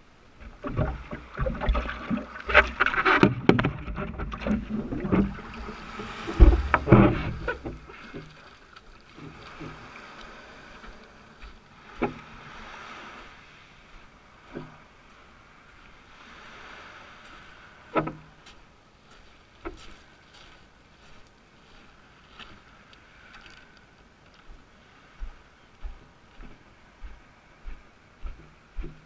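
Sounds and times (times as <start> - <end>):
water splashing around paddleboard: 0.3 - 22.4
knocks and bumps on board: 6.3 - 7.8.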